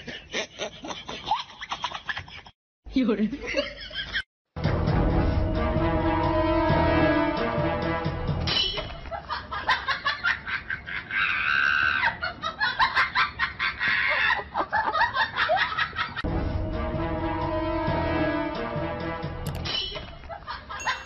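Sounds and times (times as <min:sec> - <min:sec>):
background music: 0:04.6 - 0:08.8, 0:16.3 - 0:19.7
high-pitched laughter: 0:08.5 - 0:16.2.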